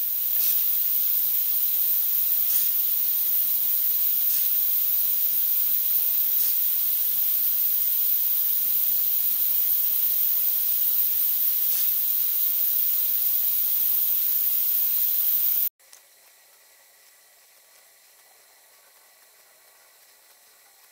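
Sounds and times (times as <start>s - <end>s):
loud high-pitched hiss: 0.0s - 15.7s.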